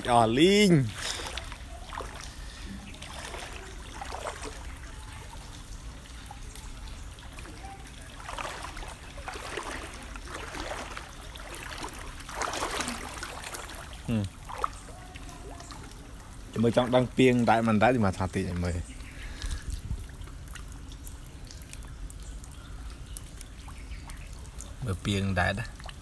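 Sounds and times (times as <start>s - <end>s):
wading through floodwater: 0.0s - 26.0s
water trickling: 0.0s - 26.0s.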